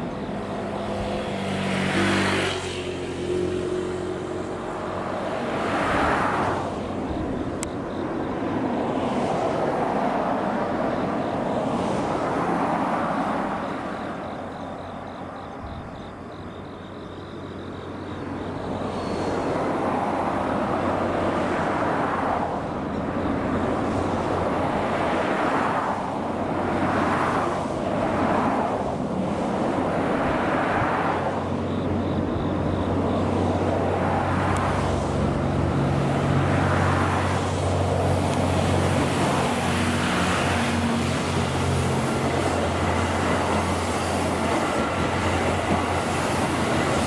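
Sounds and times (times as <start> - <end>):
diesel train approaching: 0.0 - 47.0.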